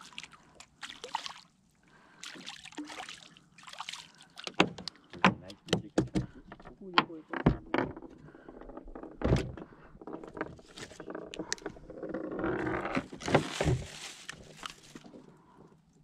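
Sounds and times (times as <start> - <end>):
thumps on boat deck: 4.5 - 6.7
plastic bag rustling: 13.0 - 15.1.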